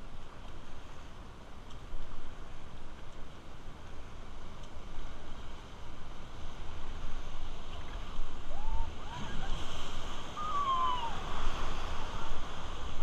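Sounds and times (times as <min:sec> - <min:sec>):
wind rumble on microphone: 0:00.0 - 0:13.0
whitewater rushing: 0:05.1 - 0:13.0
rising and falling cries: 0:10.3 - 0:11.4.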